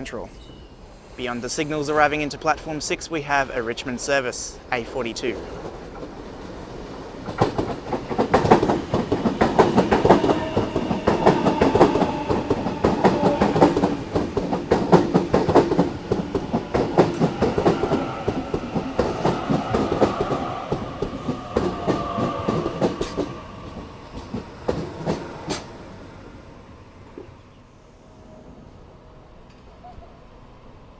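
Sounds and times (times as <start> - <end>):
train wheels clacking: 7.2 - 25.8
train whine dropping in pitch: 9.2 - 14.2.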